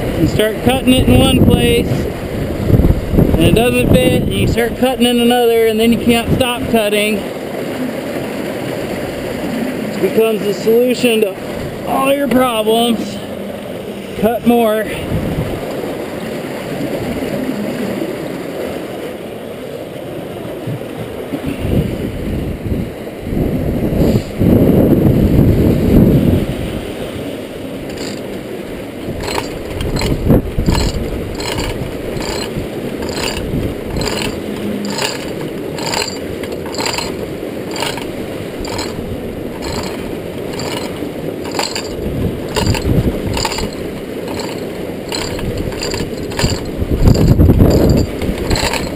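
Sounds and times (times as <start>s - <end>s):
river water churning: 0.0s - 24.0s, 25.9s - 48.9s
chain hoist ratcheting clicks: 27.9s - 28.3s, 29.2s - 48.9s.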